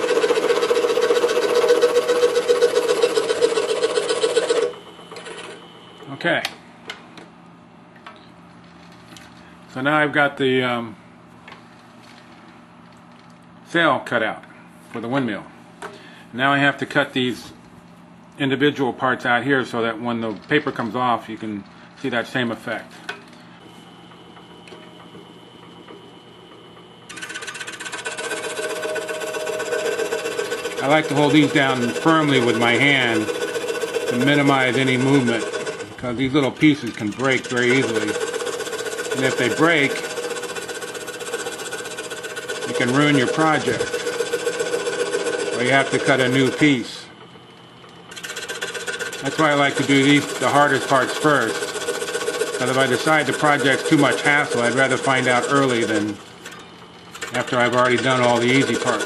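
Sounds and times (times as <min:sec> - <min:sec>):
scroll saw cutting wood: 0:00.0 - 0:05.6, 0:27.1 - 0:46.9, 0:48.1 - 0:56.2, 0:57.3 - 0:59.0
saw blade rasping through wood: 0:48.3 - 0:56.0.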